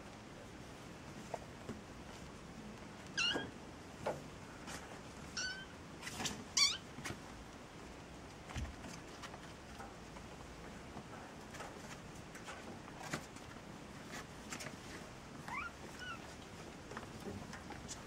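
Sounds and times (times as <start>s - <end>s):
kittens mewing: 3.2s - 3.5s, 5.4s - 5.8s.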